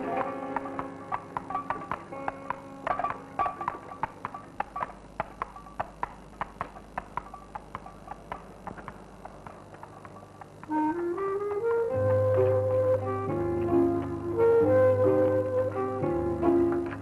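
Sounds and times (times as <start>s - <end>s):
horse hooves clip-clopping on pavement: 0.0s - 12.5s.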